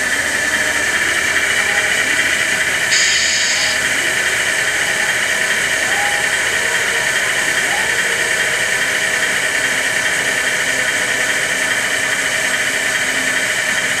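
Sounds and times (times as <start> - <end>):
simulated engine idle drone: 0.0 - 14.0.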